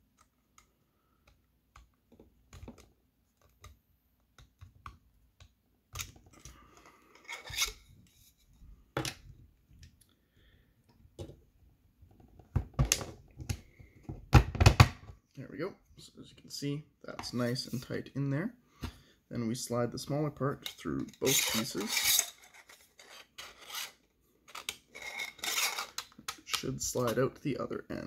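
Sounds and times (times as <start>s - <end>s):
plastic parts clicking and scraping: 0.0s - 8.3s, 20.6s - 27.4s.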